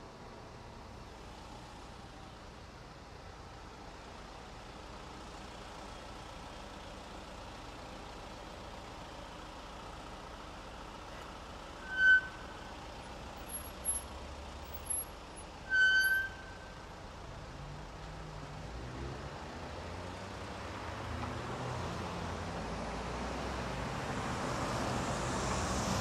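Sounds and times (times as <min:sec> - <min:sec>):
idling cars hum: 0:00.0 - 0:26.0
short high-pitched squeal: 0:11.8 - 0:14.1, 0:14.8 - 0:16.8.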